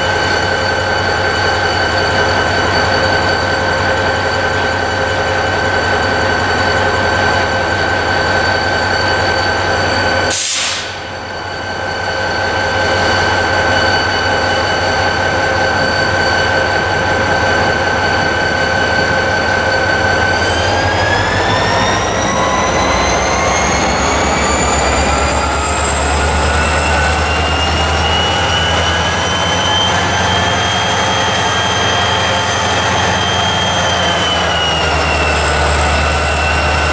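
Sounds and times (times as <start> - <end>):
locomotive engine with whine: 0.0 - 36.9
brief hiss: 10.3 - 11.0.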